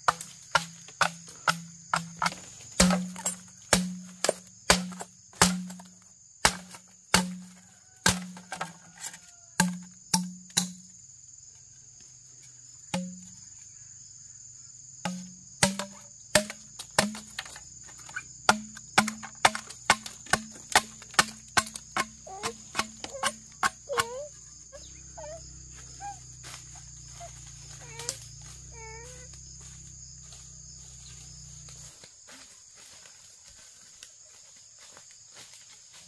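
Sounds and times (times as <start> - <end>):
high insect drone: 0.0 - 36.0
blade chopping on wooden block: 0.1 - 8.4, 15.1 - 17.5, 18.5 - 24.2
rising-and-falling animal calls: 23.8 - 29.3.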